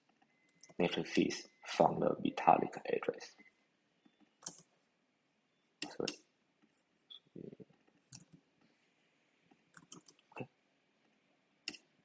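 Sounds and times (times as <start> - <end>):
mouse and keyboard clicks: 9.8 - 10.2.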